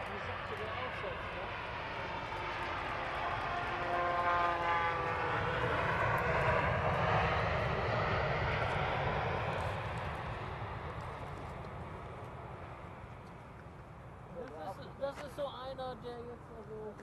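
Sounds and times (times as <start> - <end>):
jet engine reverse thrust roar: 0.0 - 15.4
jet engine whine: 0.0 - 17.0.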